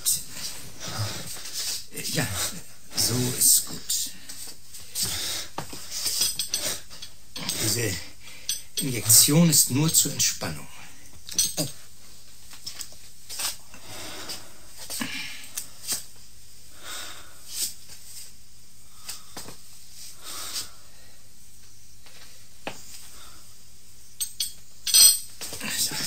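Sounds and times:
man breathing and sighing: 0.0s - 2.7s, 4.0s - 8.8s, 13.7s - 16.0s.

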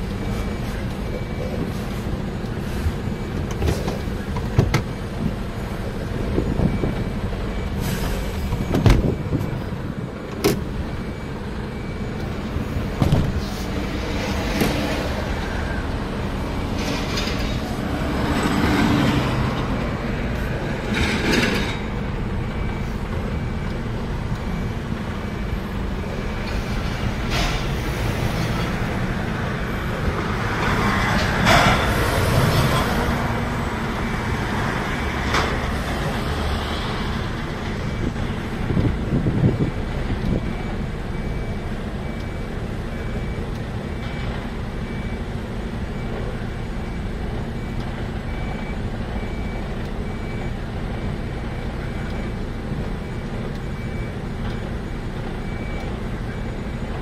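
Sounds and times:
truck engine rumbling: 0.0s - 57.0s.

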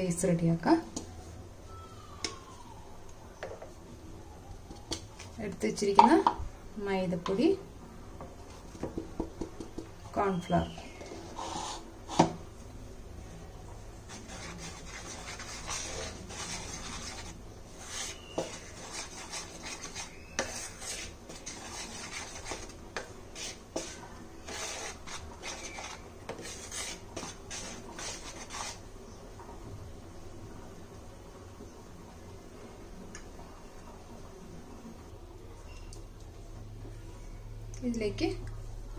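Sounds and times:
spoon scraping a bowl: 10.7s - 12.3s, 14.1s - 28.8s.

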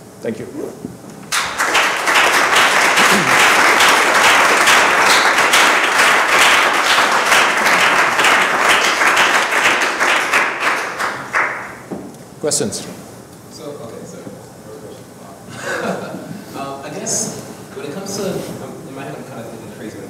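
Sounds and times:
audience applauding: 1.3s - 11.9s.

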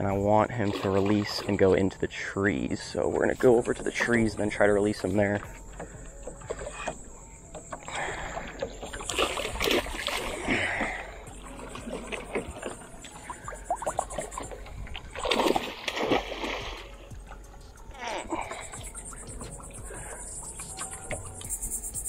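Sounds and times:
fish splashing water: 7.9s - 17.4s.

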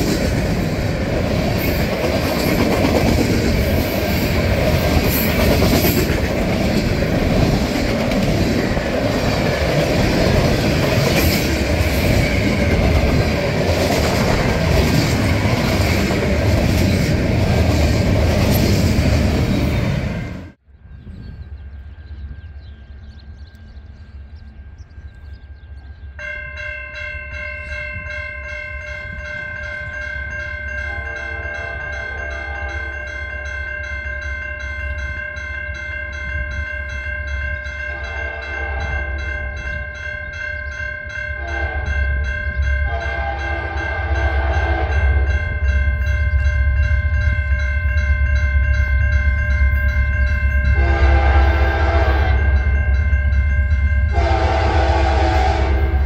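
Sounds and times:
crossing warning bell clanging: 0.0s - 20.6s, 21.6s - 56.0s
train rumble: 0.0s - 56.0s
train air horn blasts: 30.9s - 32.9s, 37.9s - 39.2s, 41.4s - 42.1s, 42.8s - 45.4s, 50.8s - 52.6s, 54.1s - 56.0s.

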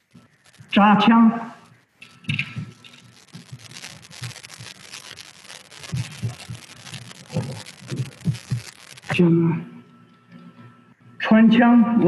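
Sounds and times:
small clicks: 0.0s - 0.8s, 1.6s - 9.2s
rustling: 0.0s - 1.0s, 1.6s - 9.2s.

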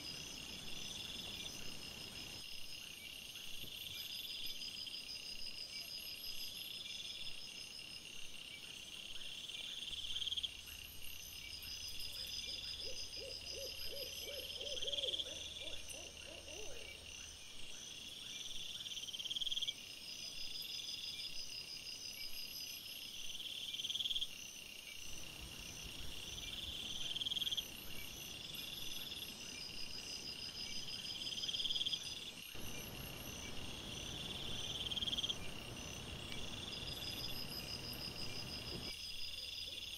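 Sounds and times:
crickets chirping: 0.0s - 39.9s
lower pulsed insect notes: 22.1s - 39.3s.

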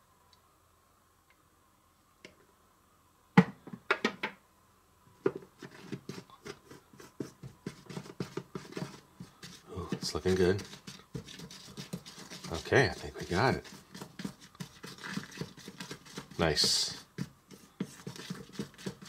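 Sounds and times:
spoon stirring in plastic bowl: 5.3s - 19.0s.

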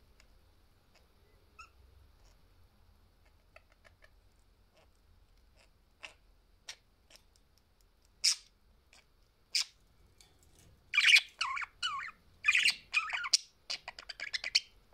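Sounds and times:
budgie calls chattering and squawking: 10.9s - 14.7s.

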